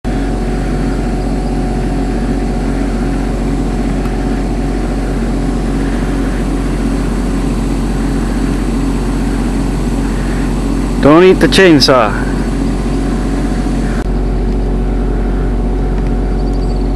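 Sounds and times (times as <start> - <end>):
machine engine droning: 0.0 - 16.9.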